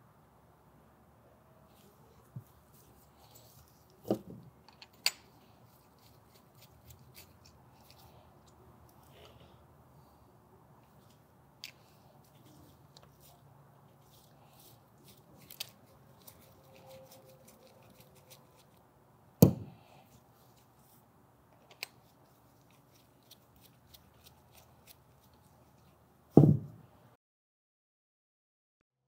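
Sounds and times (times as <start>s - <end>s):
small metal clicks and scrapes: 4.6s - 9.4s, 14.1s - 18.8s
sharp knocks: 19.4s - 19.8s, 26.4s - 26.8s.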